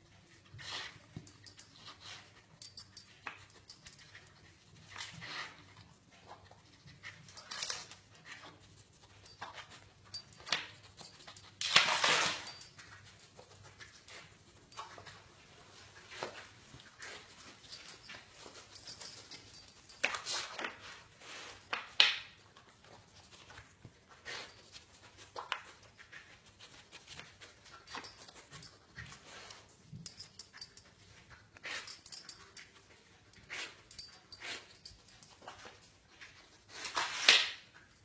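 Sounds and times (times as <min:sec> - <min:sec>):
dog sniffing: 0:31.5 - 0:35.4.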